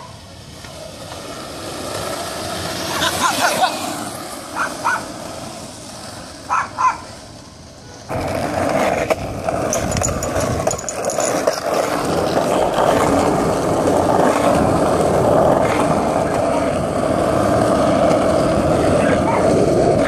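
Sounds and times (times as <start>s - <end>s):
skateboard wheels rolling on asphalt: 0.0s - 20.0s.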